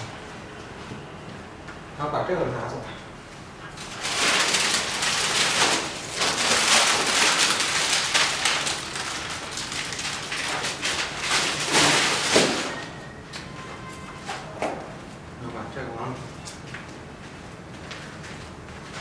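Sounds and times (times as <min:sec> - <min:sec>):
cardboard box in plastic rustling: 0:03.8 - 0:13.0.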